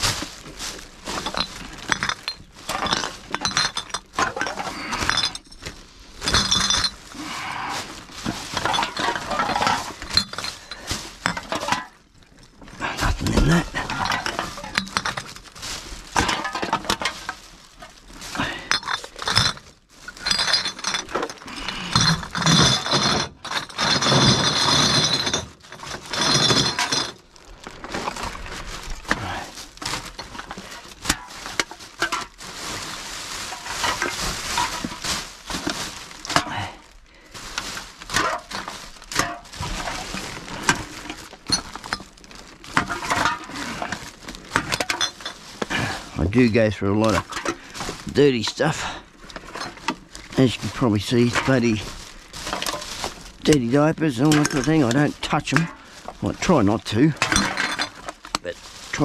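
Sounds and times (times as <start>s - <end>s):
plastic bags rustling: 0.0s - 59.0s
drink cans clinking: 6.3s - 7.0s, 44.6s - 59.0s.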